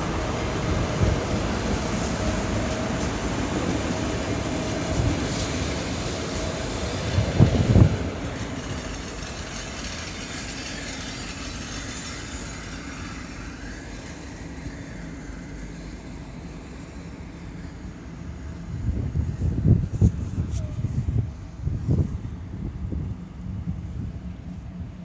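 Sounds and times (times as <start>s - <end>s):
train wheel clacks: 0.0s - 16.2s
train carriages rumbling: 0.0s - 25.0s.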